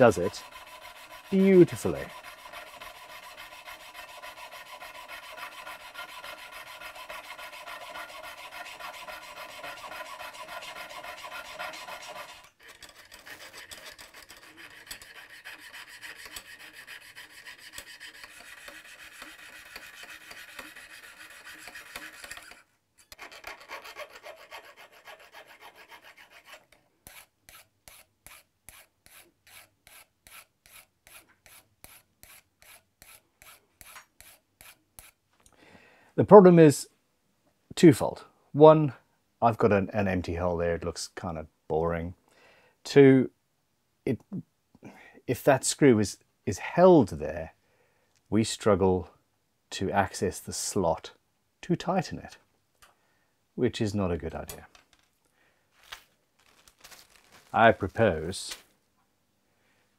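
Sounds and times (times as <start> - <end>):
saw rasping through metal tube: 0.0 - 35.2.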